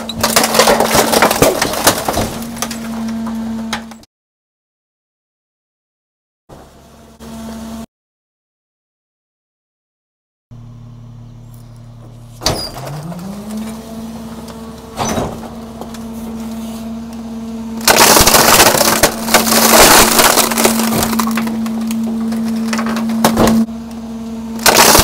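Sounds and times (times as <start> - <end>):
junk crunching and breaking: 0.0 - 4.0, 12.4 - 17.2, 17.8 - 23.8, 24.5 - 25.0
hydraulic whine: 10.5 - 25.0
sharp cracks: 17.8 - 21.5, 24.6 - 25.0.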